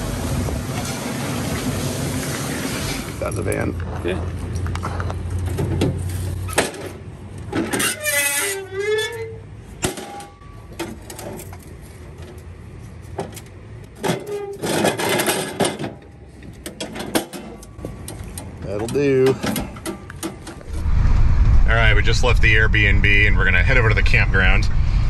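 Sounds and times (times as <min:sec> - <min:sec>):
metal ramp clanking and scraping: 0:05.5 - 0:11.6, 0:13.9 - 0:17.8.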